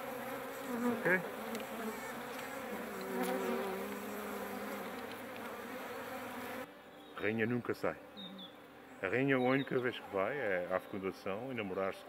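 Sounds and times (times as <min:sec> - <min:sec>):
bees buzzing: 0:00.0 - 0:11.4
faint clicks: 0:04.9 - 0:05.6.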